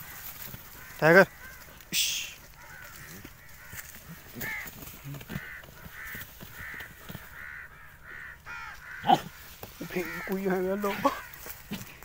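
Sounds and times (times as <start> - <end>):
animal calling: 0.0 - 11.8
rustling in dry grass: 0.0 - 12.0.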